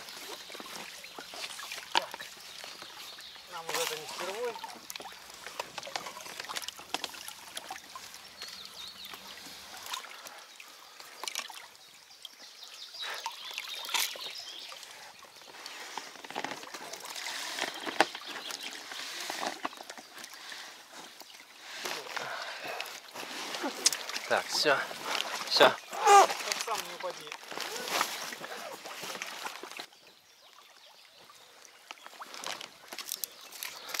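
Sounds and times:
river water splashing: 0.0s - 34.0s
knocks and scrapes: 15.7s - 20.7s.

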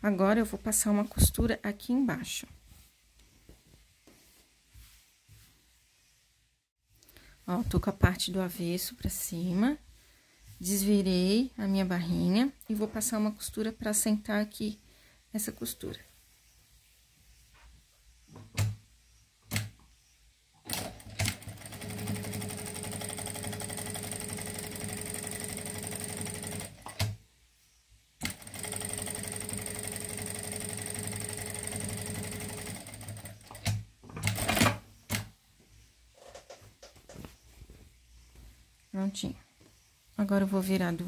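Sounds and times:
sewing machine stitching: 20.7s - 27.1s, 28.2s - 34.8s.

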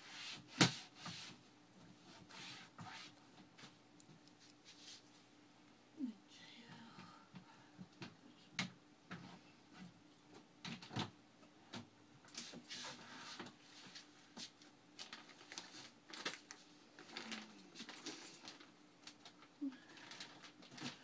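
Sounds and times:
soft rustles: 0.0s - 5.4s, 12.3s - 21.0s
low steady hum: 1.0s - 21.0s
faint irregular clicks: 4.0s - 4.6s.

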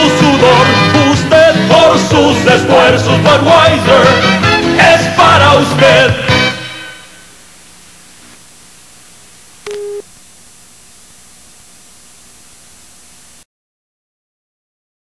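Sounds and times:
faint hum: 5.8s - 13.5s
steady hiss: 6.7s - 13.4s
short beep: 9.6s - 10.0s.

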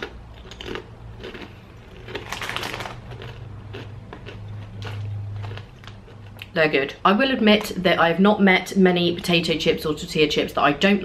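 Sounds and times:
crunching tortilla chip: 0.0s - 6.4s.

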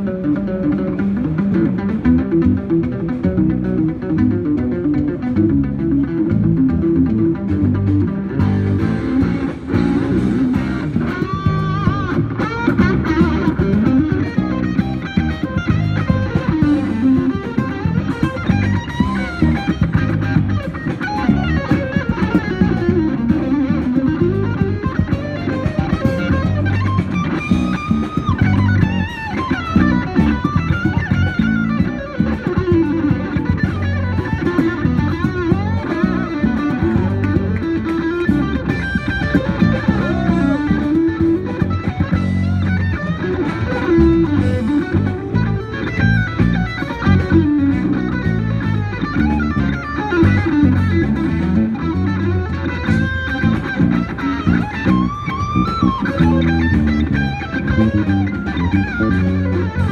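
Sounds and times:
electric guitar lead: 0.0s - 59.9s
low bass line: 0.0s - 59.9s.

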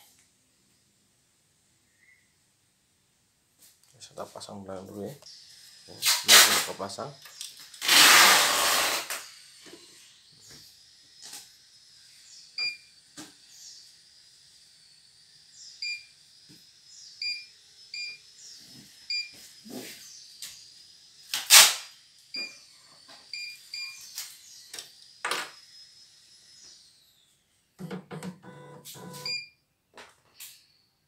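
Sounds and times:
faint high whine: 3.6s - 29.6s
short electronic beeps: 28.5s - 29.6s.

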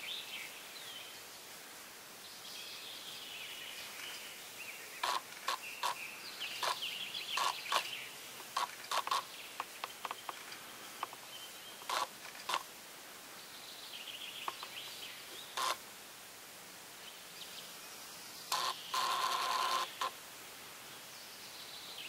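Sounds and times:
faint bird chirping: 2.2s - 12.6s, 13.3s - 15.8s, 17.0s - 20.2s.

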